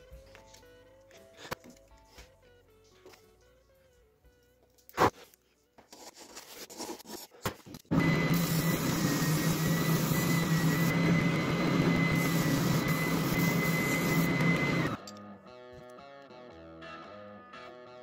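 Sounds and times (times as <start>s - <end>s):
spindle sander running: 7.9s - 15.0s.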